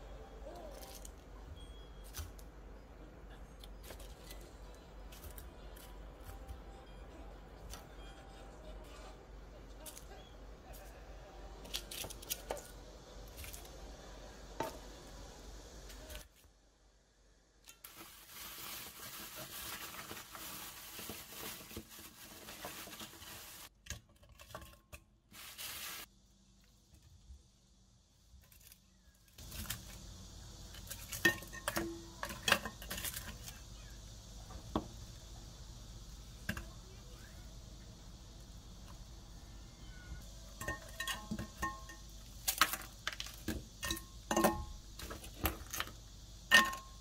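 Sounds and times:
steady hiss: 0:12.1 - 0:23.7, 0:25.3 - 0:28.7, 0:29.3 - 0:47.0
utensils clinking against pot: 0:31.1 - 0:33.4, 0:40.6 - 0:42.2, 0:43.8 - 0:45.2, 0:46.5 - 0:47.0.

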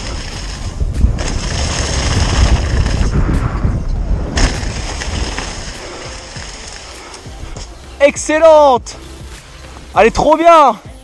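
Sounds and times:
wind rumble on microphone: 0:00.0 - 0:07.7
bike tyres and frame rattling: 0:00.0 - 0:10.3.

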